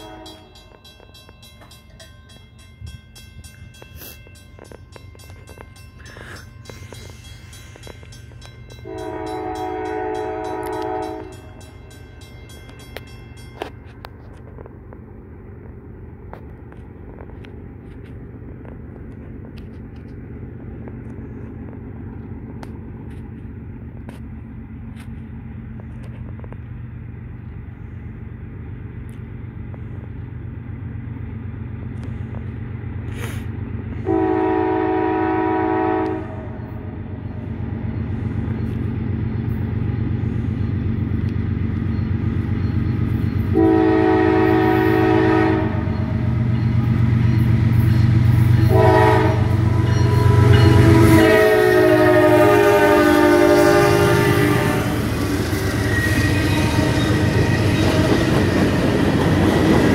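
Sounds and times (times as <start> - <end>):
locomotive air horn blasts: 0.0 - 0.8, 8.8 - 11.7, 34.0 - 36.8, 43.5 - 46.3, 48.5 - 58.5
train rumbling: 0.0 - 59.9.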